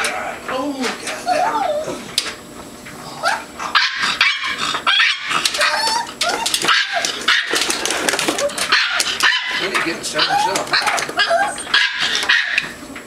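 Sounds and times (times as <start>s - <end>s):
dogs yipping and whining: 1.0s - 2.2s, 3.0s - 12.8s
clatter of clicks and knocks: 5.4s - 11.2s.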